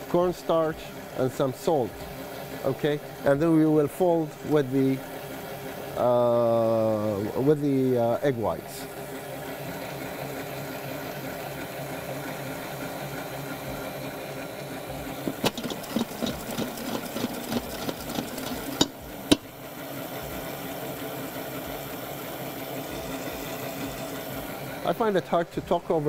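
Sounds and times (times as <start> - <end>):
stand mixer motor humming: 8.8 - 24.9
sharp clicks and rattles: 15.2 - 19.5.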